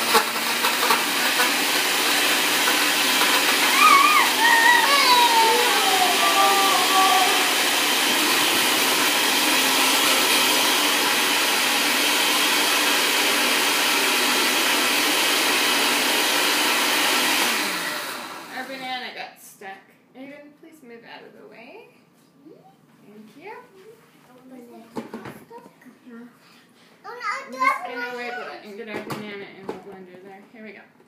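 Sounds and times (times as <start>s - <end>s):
frozen fruit churning: 0.0s - 18.5s
blender motor whirring: 0.0s - 18.9s.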